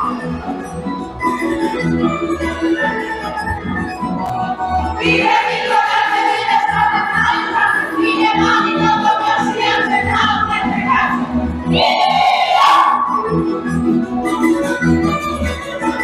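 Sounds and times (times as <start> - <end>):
folk string band playing: 0.0 - 12.5, 13.2 - 16.0
women singing along: 5.0 - 13.2.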